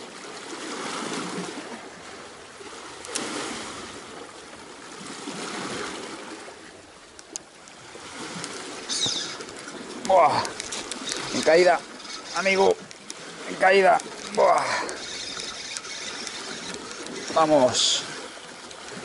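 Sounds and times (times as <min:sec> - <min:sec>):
water lapping against boat hull: 0:00.0 - 0:19.0
light clicks: 0:07.1 - 0:07.8, 0:08.4 - 0:13.2, 0:13.9 - 0:17.4.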